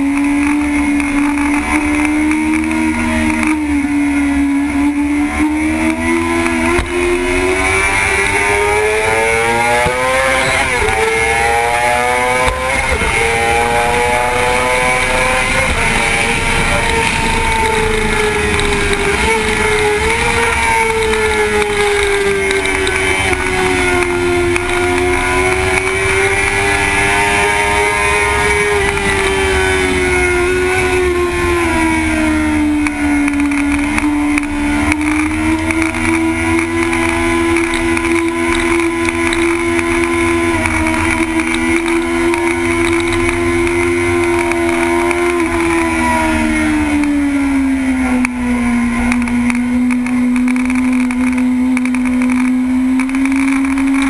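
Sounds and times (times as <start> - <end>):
motorcycle engine at high revs: 0.0 - 54.0.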